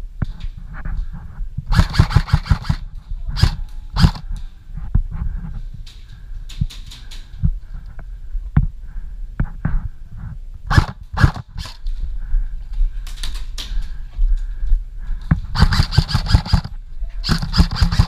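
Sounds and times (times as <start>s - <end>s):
airsoft gun single shots: 1.7s - 2.8s, 10.7s - 11.8s
rapid full-auto airsoft burst: 1.7s - 2.8s, 3.4s - 4.2s, 10.7s - 11.8s, 15.5s - 18.0s.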